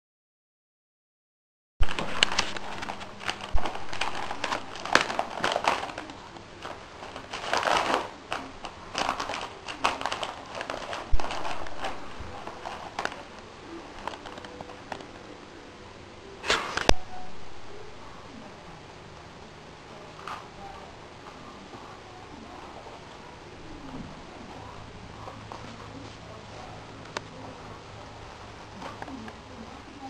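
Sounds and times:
plastic crinkling and rustling: 1.8s - 15.1s.

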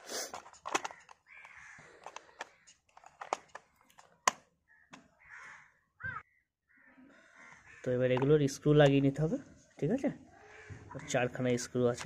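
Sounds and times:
plastic toy parts clicking: 0.3s - 5.1s, 8.1s - 9.0s.

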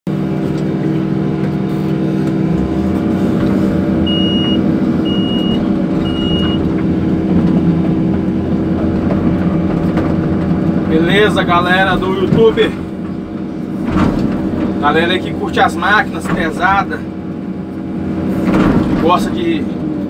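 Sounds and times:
diesel engine running: 0.1s - 20.0s
short high beeps: 4.1s - 6.6s.

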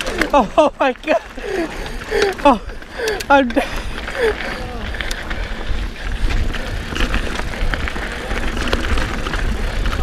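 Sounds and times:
bike chain and frame rattling: 0.0s - 10.0s
wind buffeting microphone: 1.2s - 10.0s.

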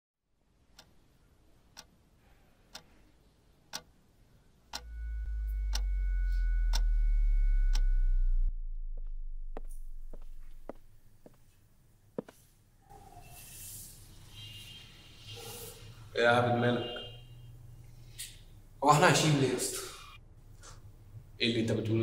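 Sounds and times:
wall clock ticking: 0.7s - 2.0s, 2.7s - 3.1s, 3.7s - 4.0s
two-note high ringing: 4.8s - 10.5s
deep low drone: 4.8s - 11.0s.

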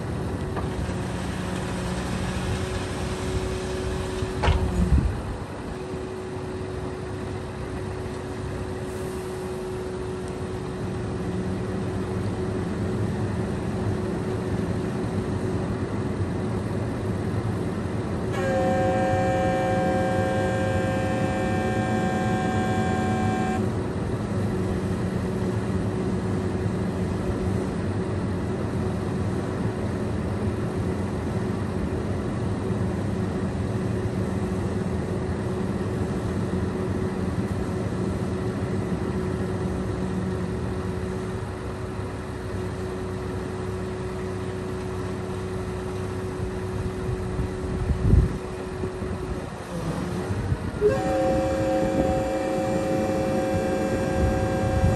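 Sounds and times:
truck engine running: 0.0s - 54.9s
loud multi-tone horn: 18.3s - 23.7s, 50.8s - 54.9s.

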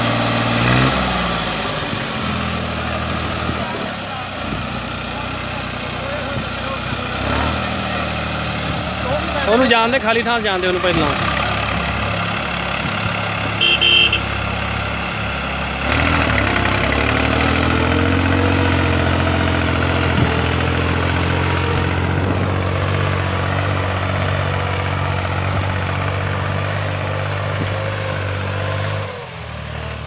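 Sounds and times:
diesel tractor engines under load: 0.0s - 30.0s.

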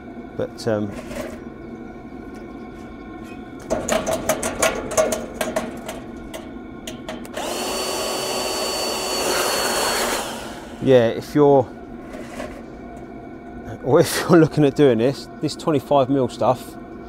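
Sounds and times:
air blower whirring: 2.9s - 13.2s.

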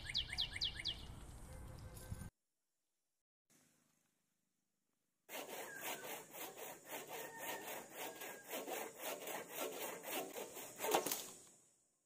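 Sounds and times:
hand saw cutting branch: 5.3s - 11.6s.

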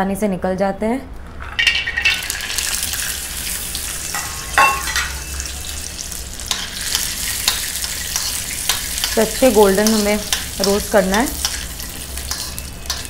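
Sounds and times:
nuts sizzling in ghee: 1.6s - 13.0s
spoon scraping pan: 6.5s - 13.0s.

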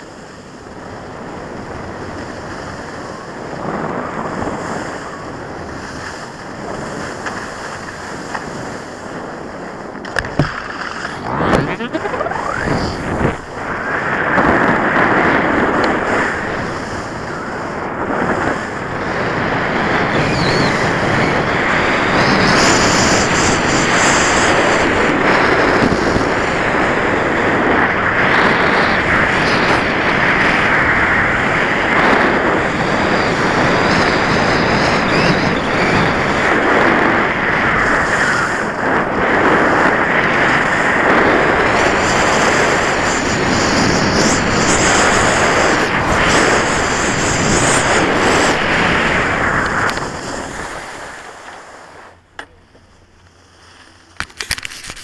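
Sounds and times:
wind buffeting microphone: 0.0s - 55.0s
scraping slide over snow: 10.5s - 16.4s.

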